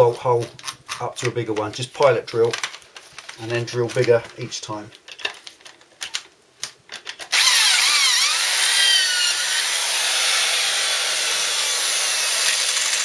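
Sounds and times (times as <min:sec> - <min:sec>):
electric drill boring through metal: 0:07.3 - 0:13.0.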